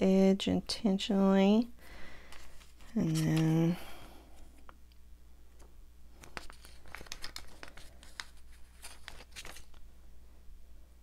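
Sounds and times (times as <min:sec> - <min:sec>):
paper stickers peeling and crinkling: 0:02.3 - 0:03.8, 0:06.2 - 0:09.8.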